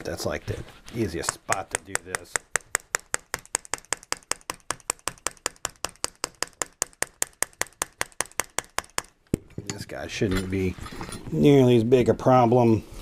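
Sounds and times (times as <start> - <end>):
rapid tapping on wooden dowel: 0.9 - 9.5.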